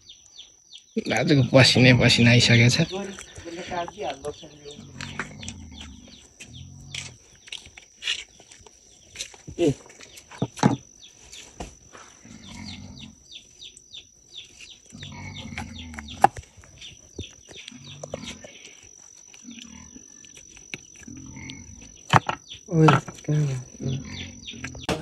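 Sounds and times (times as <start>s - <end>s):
birds chirping: 0.0s - 25.0s
pig grunting: 1.6s - 7.2s, 12.1s - 13.2s, 14.9s - 16.3s, 17.7s - 18.6s, 21.0s - 22.0s, 22.7s - 25.0s.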